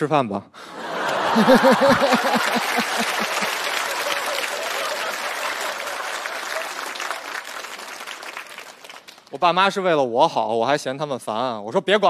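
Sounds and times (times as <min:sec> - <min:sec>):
audience laughing: 0:00.6 - 0:07.2
audience applauding: 0:00.8 - 0:09.3.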